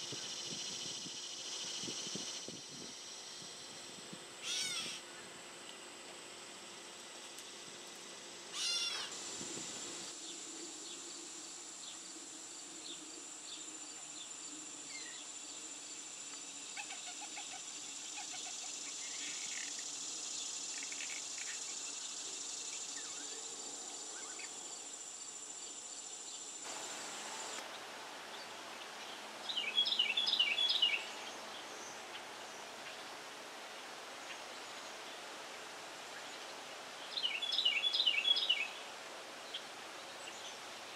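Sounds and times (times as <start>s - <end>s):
steady high-pitched buzz: 0.0s - 40.9s
catbird mew: 4.4s - 5.0s, 8.6s - 9.1s
wren singing: 29.4s - 31.6s, 37.1s - 38.8s.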